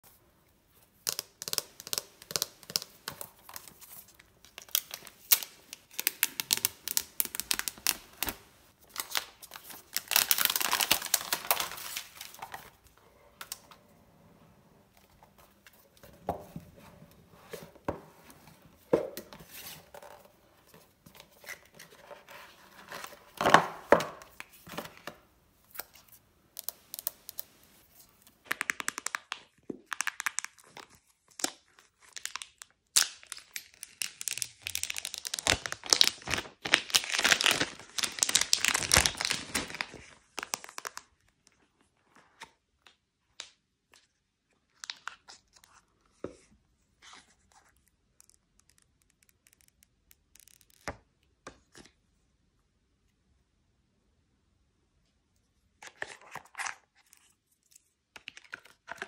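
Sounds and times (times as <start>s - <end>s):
packaging crinkling and tearing: 1.1s - 12.8s, 28.5s - 41.5s.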